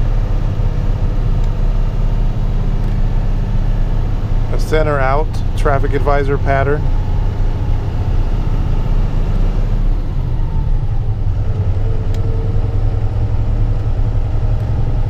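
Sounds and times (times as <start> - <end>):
diesel truck engine rumble: 0.0 - 15.0.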